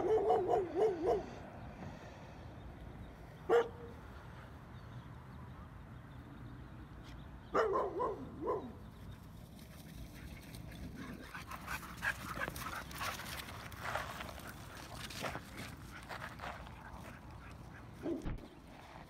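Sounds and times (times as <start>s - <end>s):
dogs yelping barks: 0.0s - 1.4s, 3.5s - 3.9s, 7.5s - 8.8s, 17.4s - 18.4s.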